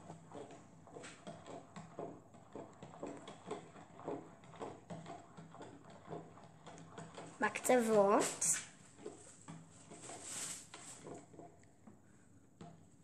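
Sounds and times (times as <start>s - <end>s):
spoon knocking plastic jug: 0.0s - 10.2s.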